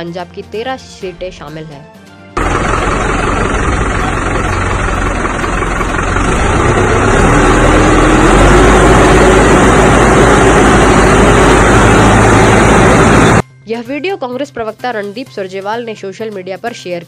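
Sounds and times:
tractor diesel engine running: 0:02.4 - 0:13.4.

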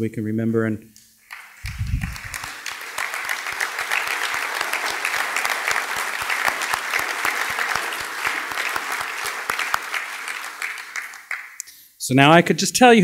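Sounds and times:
audience applauding: 0:01.3 - 0:11.6
nearby hand claps: 0:01.3 - 0:11.7.

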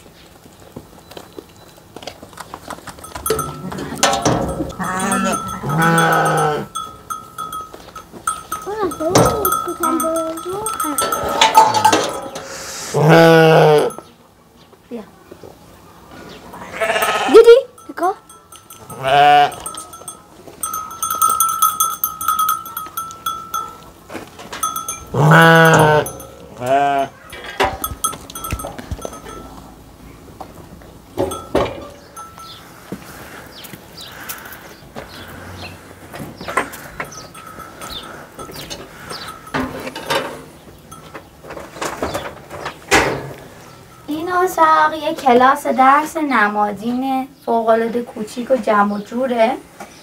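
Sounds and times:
metal livestock bell ringing: 0:02.9 - 0:14.2, 0:16.8 - 0:29.9, 0:31.2 - 0:33.0, 0:36.4 - 0:41.9, 0:43.0 - 0:45.2
animal bleating: 0:04.7 - 0:06.8, 0:12.6 - 0:14.0, 0:16.5 - 0:17.7, 0:18.8 - 0:19.8, 0:25.1 - 0:27.8.

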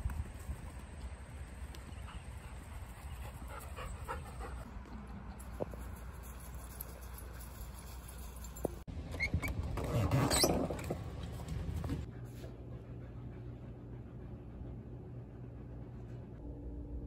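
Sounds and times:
dogs panting: 0:01.5 - 0:08.8, 0:11.9 - 0:16.4
steady low rumble: 0:10.7 - 0:17.0.

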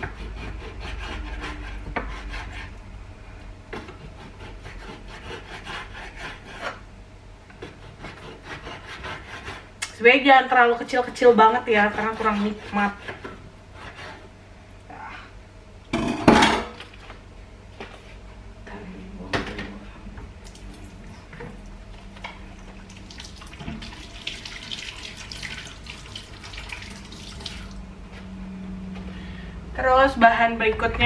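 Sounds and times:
dishes clattering and clinking: 0:15.9 - 0:16.8.

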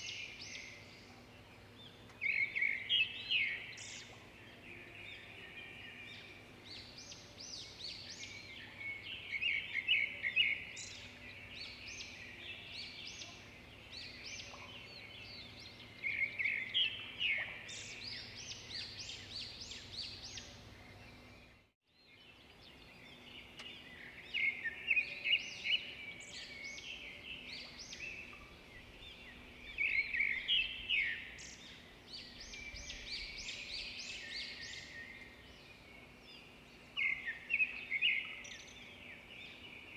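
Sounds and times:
songbirds chirping and trilling: 0:00.0 - 0:39.9.

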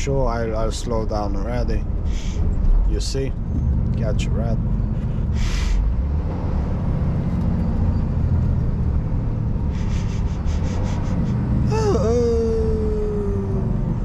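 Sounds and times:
lorry engine rumbling: 0:00.0 - 0:14.0
pitched tone slowly falling: 0:11.7 - 0:14.0.

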